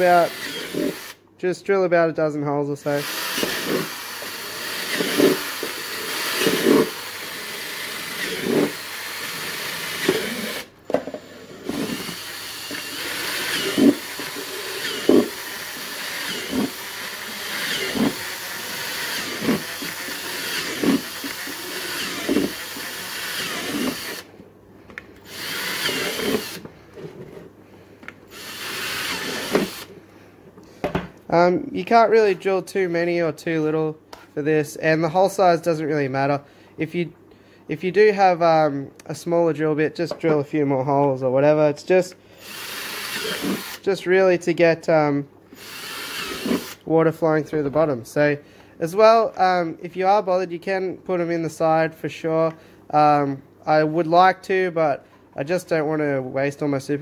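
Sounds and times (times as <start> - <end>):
cordless drill boring plastic: 0.0 - 1.2, 3.0 - 10.7, 11.6 - 24.3, 25.2 - 26.7, 28.3 - 29.9, 42.4 - 43.8, 45.6 - 46.8.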